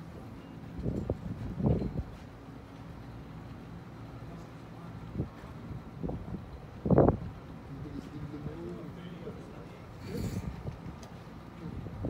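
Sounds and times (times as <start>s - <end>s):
steady low hum: 0.0s - 12.0s
wind buffeting microphone: 0.1s - 2.3s, 5.1s - 12.0s.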